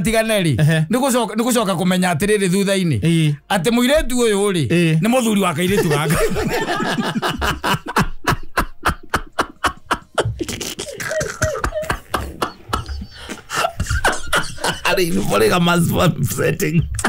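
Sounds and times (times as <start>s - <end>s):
hearty laughter: 5.6s - 15.4s.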